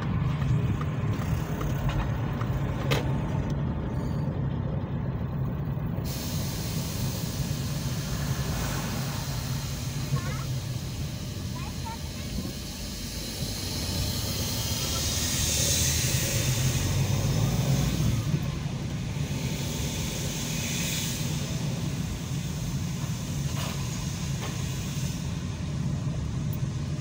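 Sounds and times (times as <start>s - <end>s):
car engine and tyre rumble: 0.0s - 27.0s
hiss: 6.0s - 27.0s.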